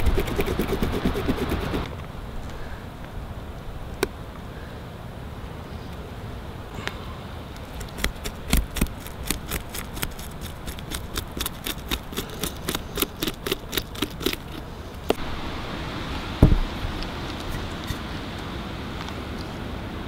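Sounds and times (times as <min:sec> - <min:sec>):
knife scraping fish scales: 0:00.0 - 0:01.8, 0:07.7 - 0:14.6.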